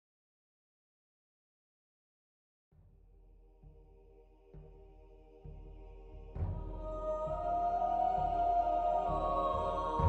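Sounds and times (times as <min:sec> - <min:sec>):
faint ambient music: 0:03.6 - 0:10.0.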